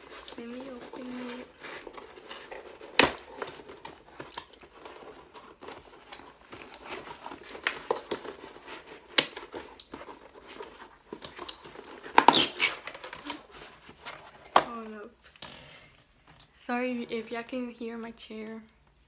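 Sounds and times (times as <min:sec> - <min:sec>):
packaging crinkling and tearing: 0:00.0 - 0:15.0
packaging snapping: 0:00.1 - 0:13.5.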